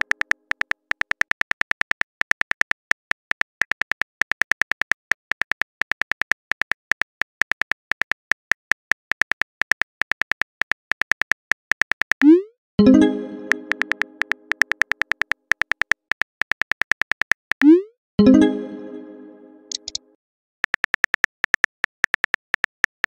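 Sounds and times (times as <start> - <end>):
keyboard key clicks: 13.5 - 17.6, 19.7 - 20.0.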